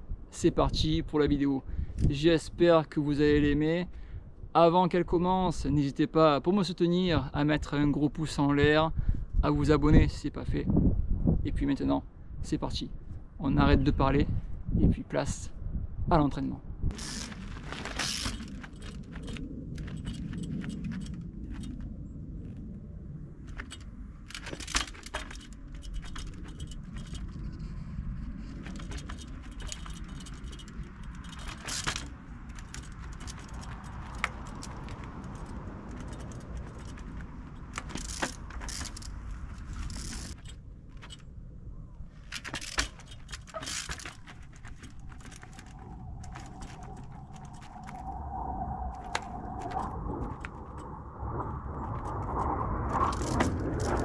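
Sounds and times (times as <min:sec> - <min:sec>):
low rumble: 0:16.6 - 0:54.0
bike chain rattling: 0:16.9 - 0:21.9, 0:23.5 - 0:41.4, 0:42.1 - 0:48.2, 0:49.0 - 0:51.0, 0:51.8 - 0:54.0.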